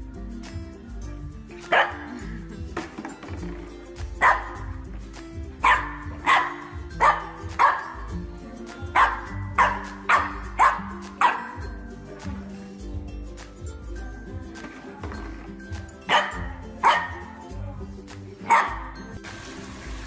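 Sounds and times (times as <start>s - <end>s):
background music: 0.0s - 20.0s
puppy yappy barks: 1.7s - 2.2s, 4.2s - 4.7s, 5.6s - 8.1s, 8.9s - 11.6s, 16.1s - 17.4s, 18.4s - 19.0s.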